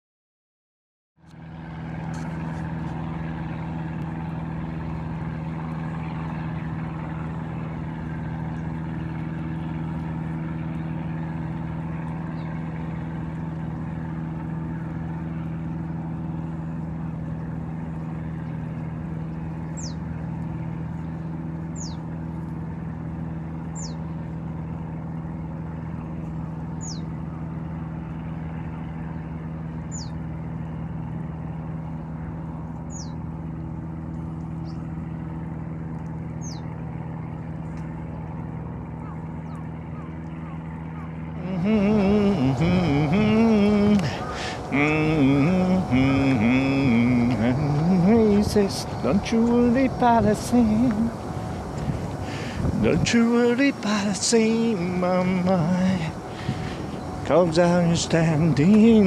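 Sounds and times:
engine drone: 1.2s - 59.0s
bird whistled call: 19.8s - 20.0s, 21.8s - 22.0s, 23.8s - 24.0s, 26.8s - 27.1s, 29.9s - 30.2s.

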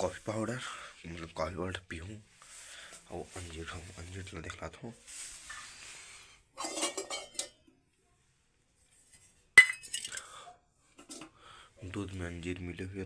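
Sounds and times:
dishes clinking: 6.6s - 7.7s, 9.6s - 10.3s.

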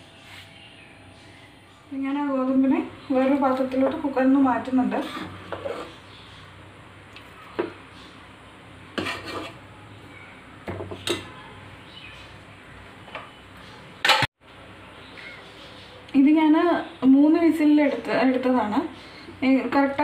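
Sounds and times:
ladle scraping metal pot: 4.6s - 6.0s, 9.0s - 9.6s.

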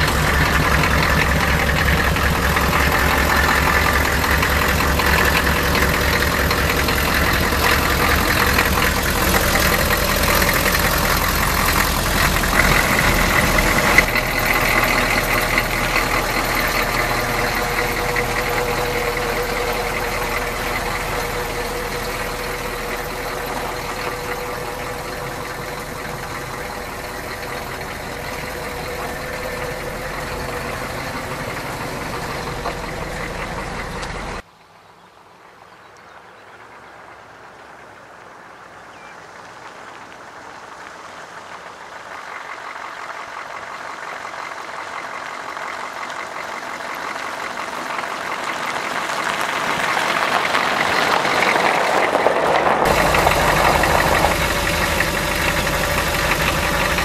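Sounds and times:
diesel engine idling with clatter: 0.0s - 34.5s, 38.9s - 57.0s.

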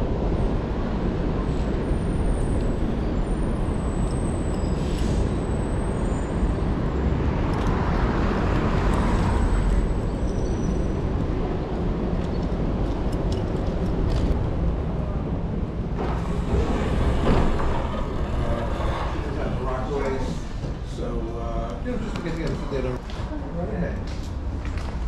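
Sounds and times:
cars passing: 0.0s - 25.0s
street traffic rumble: 0.0s - 25.0s.

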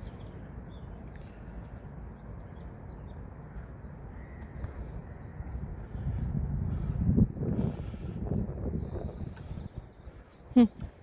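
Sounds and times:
faint bird calls: 3.4s - 7.0s.

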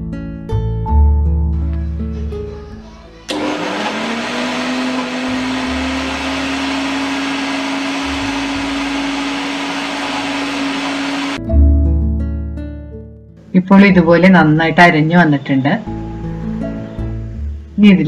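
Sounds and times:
mixer grinder motor: 3.3s - 11.4s.

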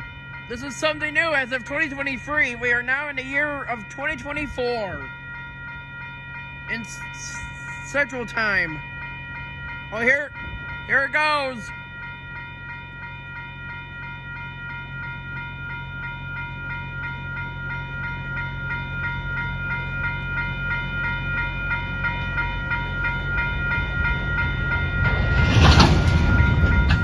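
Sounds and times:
freight train rumbling: 0.0s - 5.1s, 18.3s - 27.0s
railroad crossing bell ringing: 0.0s - 27.0s.

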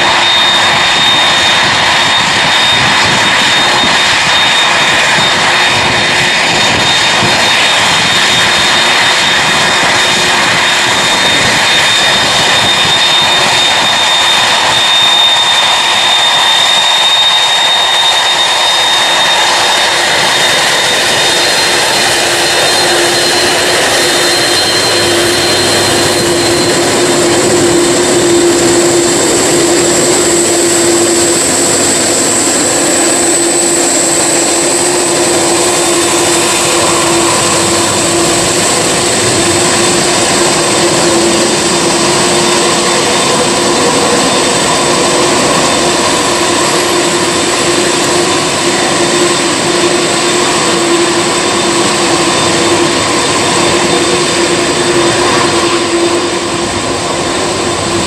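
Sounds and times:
jet engines running with whine: 0.0s - 58.0s.

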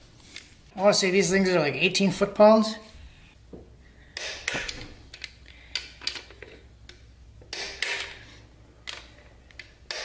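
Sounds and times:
socket ratchet clicking: 8.9s - 10.0s.

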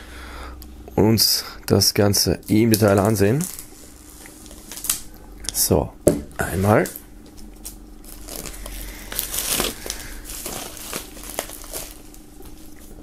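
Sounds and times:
plastic film peeled off crackling: 2.4s - 5.1s, 7.6s - 12.8s.

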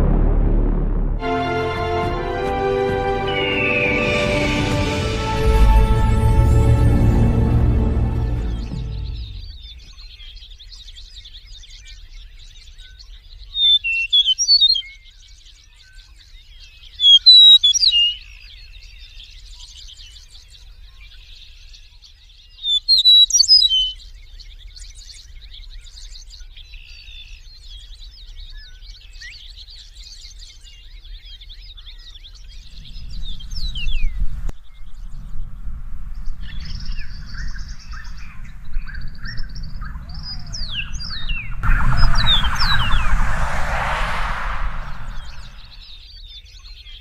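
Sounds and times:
bird singing slurred whistles: 13.6s - 14.8s, 22.6s - 24.0s.

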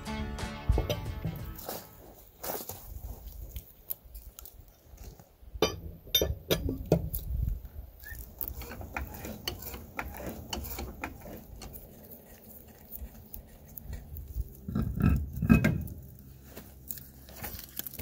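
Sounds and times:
heavy wheel thumps: 0.4s - 1.7s.

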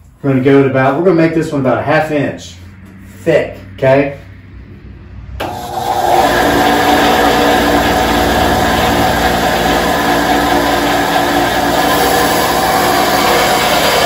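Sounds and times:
bandsaw running: 5.4s - 14.0s.

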